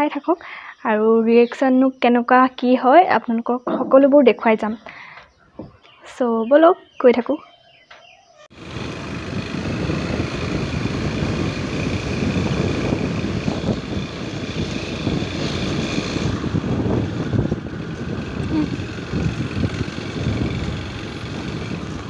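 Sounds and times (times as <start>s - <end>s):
motorbike engine running: 8.5s - 22.0s
wind rushing over microphone: 8.6s - 22.0s.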